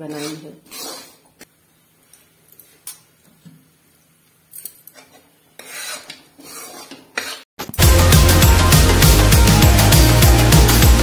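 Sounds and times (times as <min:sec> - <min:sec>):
steel spoon scraping a pan: 0:00.0 - 0:01.4, 0:04.9 - 0:07.5.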